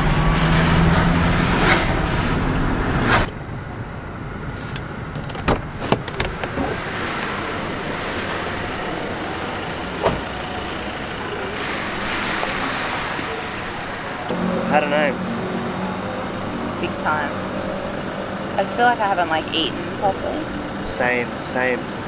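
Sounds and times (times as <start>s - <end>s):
car engine and road rumble: 0.0s - 22.0s
car door handle and latch clicks: 5.2s - 6.8s.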